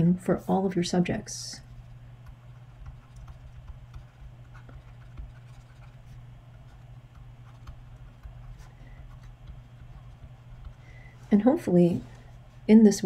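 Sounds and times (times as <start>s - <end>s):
steady low hum: 0.0s - 13.0s
stylus tapping and scratching: 1.6s - 13.0s.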